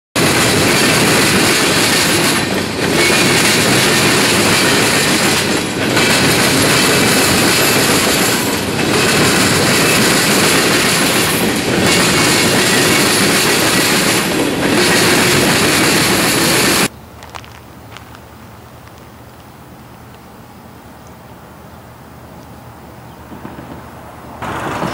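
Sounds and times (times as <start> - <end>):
freight train wheels clattering: 0.2 - 16.9, 23.3 - 24.9.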